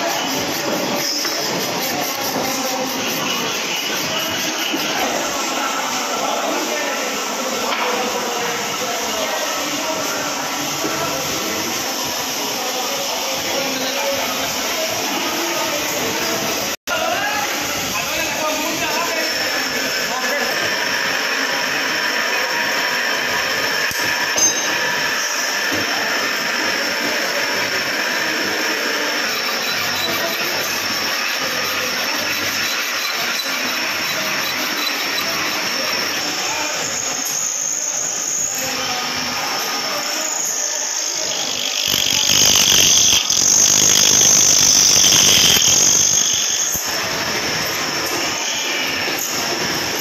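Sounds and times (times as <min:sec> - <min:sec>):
bench grinder grinding steel: 0:00.0 - 0:05.5, 0:19.0 - 0:50.0
drill motor running: 0:00.0 - 0:05.7, 0:18.1 - 0:50.0
drill cutting into metal: 0:00.0 - 0:06.1, 0:18.1 - 0:50.0.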